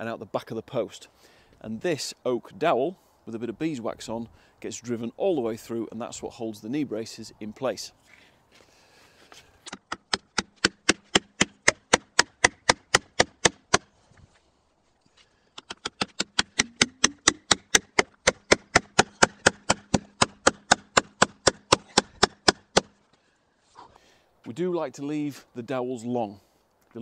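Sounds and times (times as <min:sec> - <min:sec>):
hammer striking wooden dowel: 0:09.7 - 0:13.9, 0:15.6 - 0:22.9.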